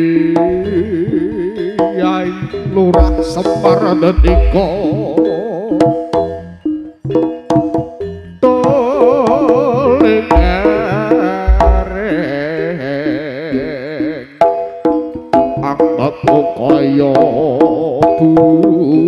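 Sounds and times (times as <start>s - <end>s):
hand drum strokes: 0.0s - 6.4s, 7.0s - 12.6s
melody with heavy vibrato: 0.0s - 19.0s
deep bass hits: 2.5s - 5.1s.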